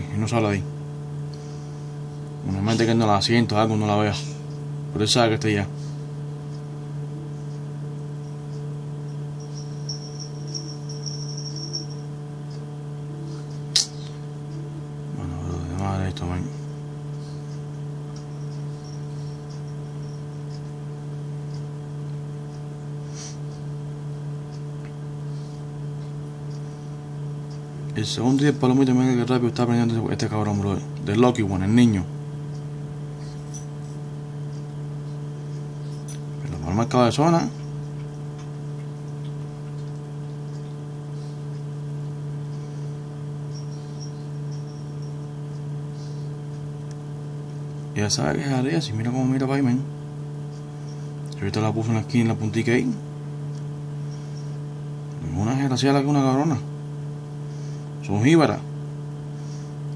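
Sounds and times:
low electrical hum: 0:00.0 - 0:59.9
faint high chirps: 0:09.0 - 0:12.6, 0:42.4 - 0:45.3.

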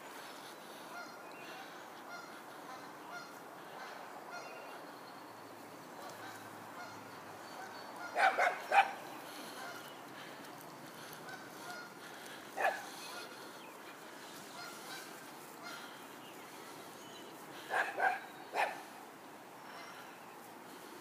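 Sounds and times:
small dog barking: 0:08.2 - 0:09.0, 0:12.6 - 0:12.9, 0:17.7 - 0:18.9.

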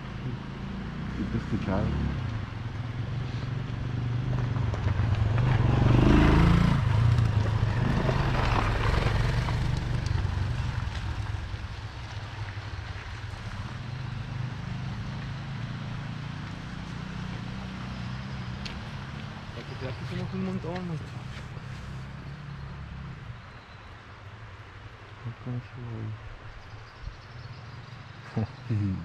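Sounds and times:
road noise: 0:00.0 - 0:29.0
motorcycle engine running: 0:13.4 - 0:22.8.

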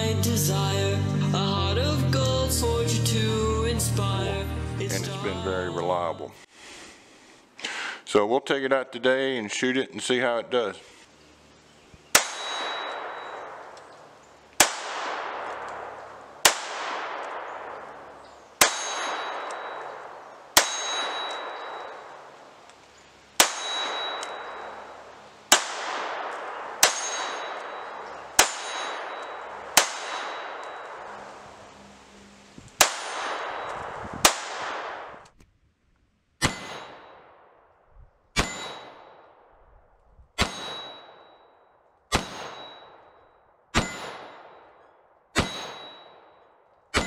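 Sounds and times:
pistol shots with echo: 0:12.1 - 0:14.0, 0:14.6 - 0:22.4, 0:23.4 - 0:31.2, 0:32.8 - 0:35.2, 0:36.4 - 0:39.6, 0:40.4 - 0:47.0.

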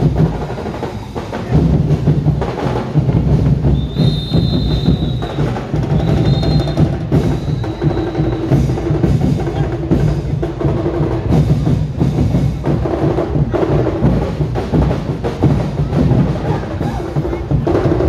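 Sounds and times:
percussion band drumming: 0:00.0 - 0:18.0.

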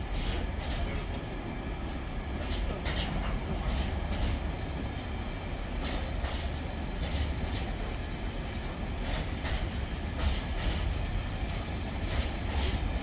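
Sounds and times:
freight train rumble: 0:00.0 - 0:13.0.

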